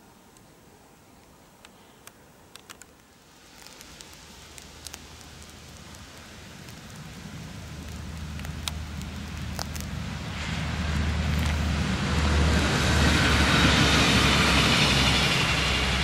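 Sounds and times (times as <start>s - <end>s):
diesel train approaching: 6.0s - 16.0s.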